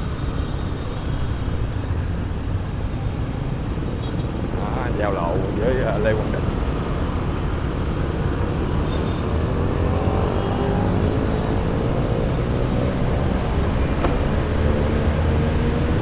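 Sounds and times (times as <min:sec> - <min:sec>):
traffic engines rumbling: 0:00.0 - 0:16.0
engine hum rising in pitch: 0:09.0 - 0:16.0.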